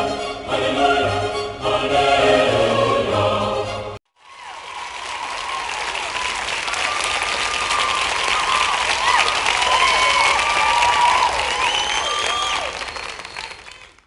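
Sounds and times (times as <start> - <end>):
operatic choral music: 0.0 - 4.0
audience applause: 4.2 - 14.0.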